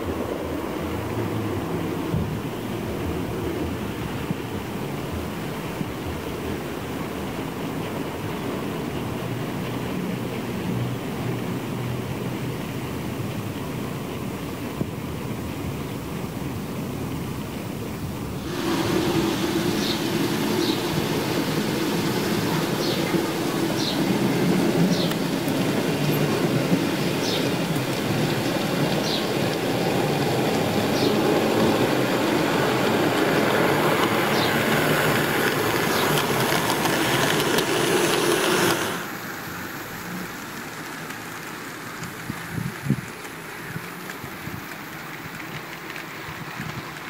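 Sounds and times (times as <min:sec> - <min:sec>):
wheel rumble: 0:00.0 - 0:47.0
model train motor hum: 0:15.6 - 0:47.0.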